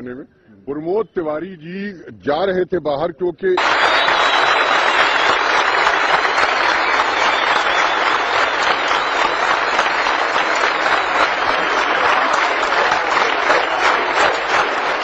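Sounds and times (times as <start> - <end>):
crowd applauding: 3.6 - 15.0.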